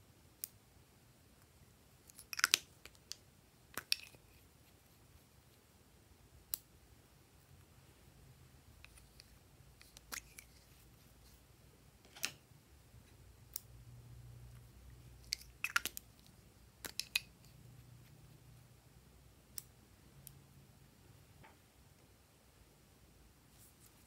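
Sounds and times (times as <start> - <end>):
plastic tubes and scissors clicking: 2.1 - 4.2, 15.2 - 17.3.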